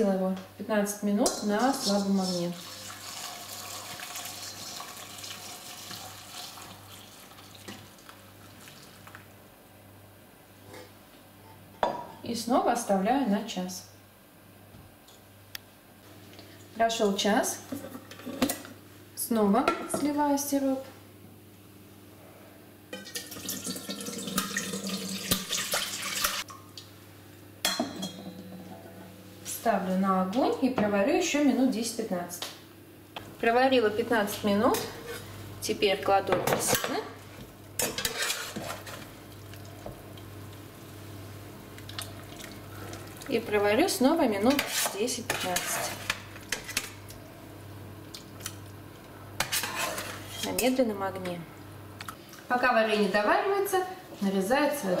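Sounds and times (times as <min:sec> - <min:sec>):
syrup pouring and splashing: 0:02.6 - 0:09.2.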